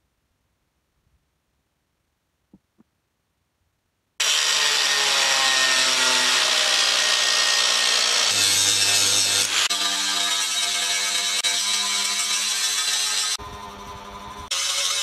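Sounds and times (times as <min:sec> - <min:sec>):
angle grinder grinding steel: 0:04.2 - 0:15.0.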